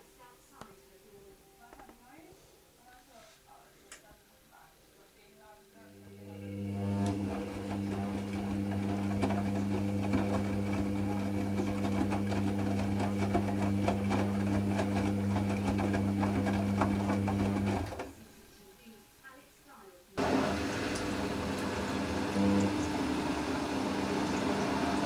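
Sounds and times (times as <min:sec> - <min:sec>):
washing machine motor hum: 0:06.0 - 0:18.2, 0:20.2 - 0:25.0.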